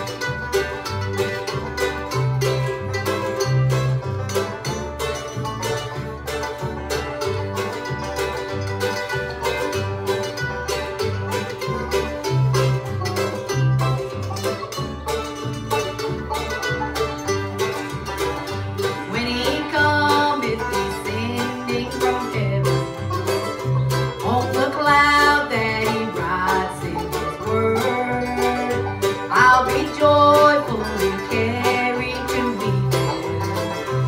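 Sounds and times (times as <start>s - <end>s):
picked strings: 0.0s - 34.0s
upright bass: 0.0s - 34.0s.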